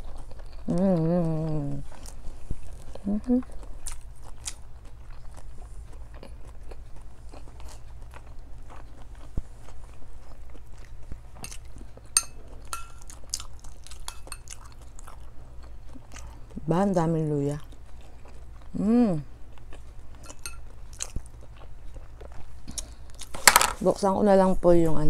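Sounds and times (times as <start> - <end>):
person chewing: 0.0 - 23.4
metal spoon clinking ceramic dishes: 12.2 - 13.1.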